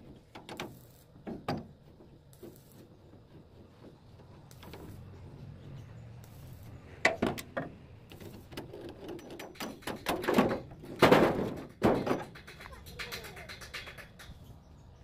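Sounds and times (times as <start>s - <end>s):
metal clatter: 6.4s - 14.4s
metal clinks and knocks: 8.6s - 14.4s.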